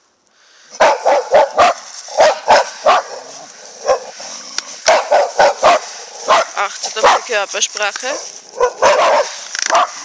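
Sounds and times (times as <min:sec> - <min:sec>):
dog barking sharply: 0:00.7 - 0:04.1, 0:04.8 - 0:07.4, 0:08.6 - 0:10.0.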